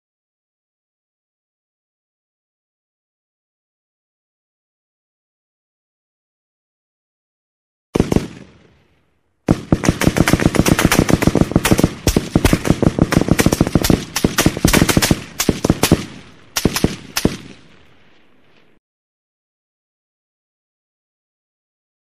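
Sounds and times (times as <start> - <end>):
automatic gunfire bursts: 8.0 - 8.5, 9.5 - 17.6
gunshot with echo: 8.0 - 8.6, 9.5 - 17.7.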